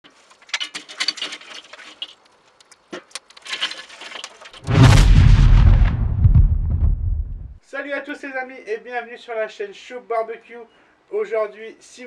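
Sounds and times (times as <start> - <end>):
charcoal crackling and popping: 0.0 - 7.5
deep rumbling whoosh: 4.7 - 7.6.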